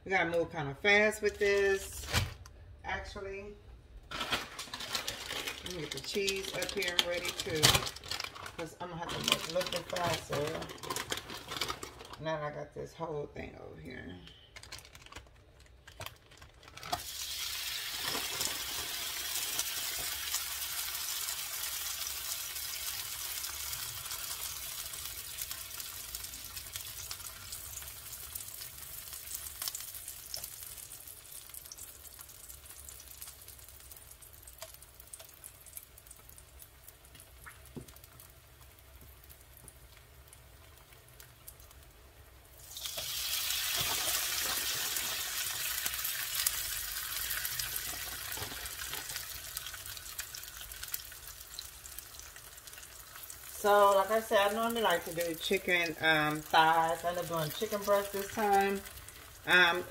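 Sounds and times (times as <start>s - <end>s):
tortilla sizzling on a griddle: 16.9s - 59.9s.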